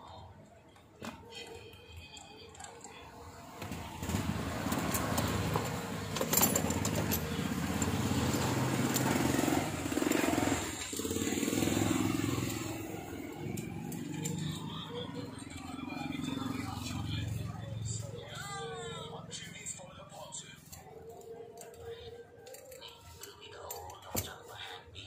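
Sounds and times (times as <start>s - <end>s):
vehicle engine running: 3.8s - 21.4s.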